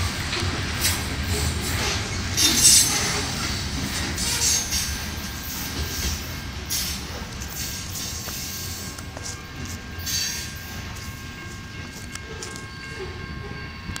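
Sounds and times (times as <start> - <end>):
train wheels rumbling on rail: 0.0 - 14.0
high-pitched wheel squeal: 2.4 - 3.5.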